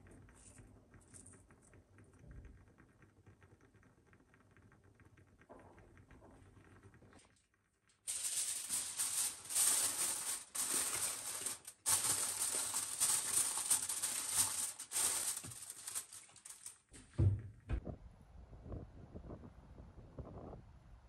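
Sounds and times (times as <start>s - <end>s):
aluminium foil crinkling: 7.2s - 17.0s
oven door thump: 17.0s - 17.8s.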